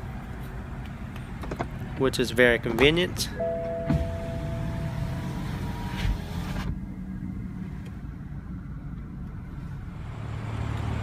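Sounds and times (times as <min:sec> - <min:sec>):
car idling hum: 0:02.1 - 0:10.0
roof clunk: 0:02.7 - 0:04.4.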